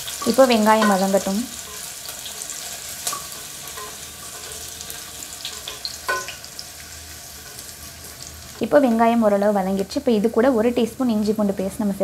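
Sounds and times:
onions sizzling in hot oil: 0:00.0 - 0:12.0
spatula scraping and knocking pot: 0:03.0 - 0:06.4.

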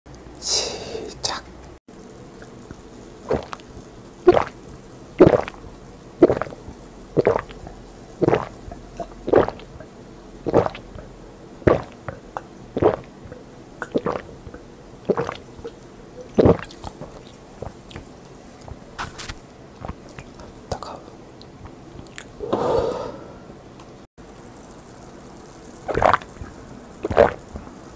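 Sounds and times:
person gulping a drink: 0:02.4 - 0:03.7, 0:04.3 - 0:04.6, 0:05.2 - 0:20.5, 0:25.8 - 0:27.8.

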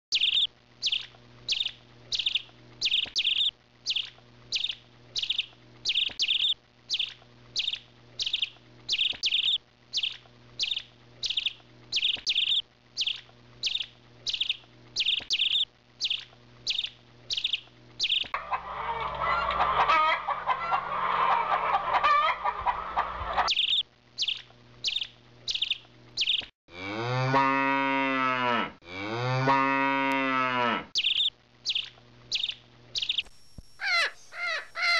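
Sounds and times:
bird chirping: 0:00.1 - 0:18.4, 0:19.3 - 0:26.5, 0:31.0 - 0:34.9
mixed animal calls: 0:18.4 - 0:23.8, 0:33.8 - 0:34.9
cow mooing: 0:26.7 - 0:30.9.

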